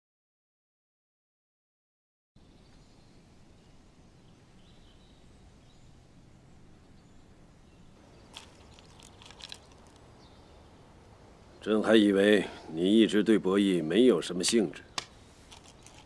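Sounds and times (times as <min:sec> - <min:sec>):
birds chirping: 0:02.4 - 0:16.0.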